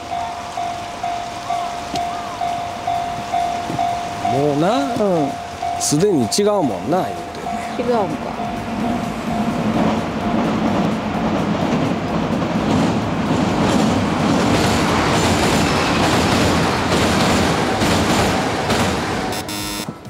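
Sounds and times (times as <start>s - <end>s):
electric train running past: 0.0s - 20.0s
wheels clattering over rail joints: 0.0s - 20.0s.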